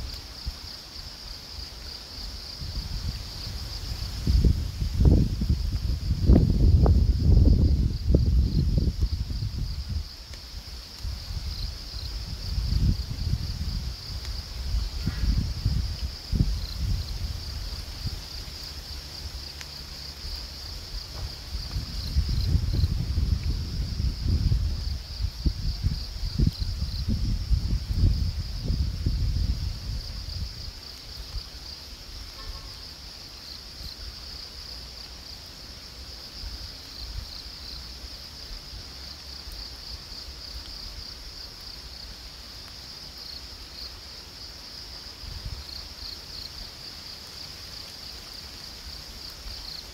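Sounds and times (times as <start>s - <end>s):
wind rumbling on microphone: 0.0s - 32.7s, 44.9s - 46.8s
high-pitched insect chorus: 0.0s - 49.9s.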